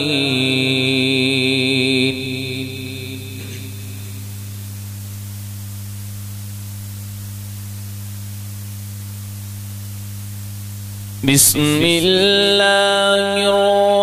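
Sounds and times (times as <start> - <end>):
voice echo: 0.0 - 4.8, 11.2 - 14.0
electrical hum with hiss: 0.0 - 14.0.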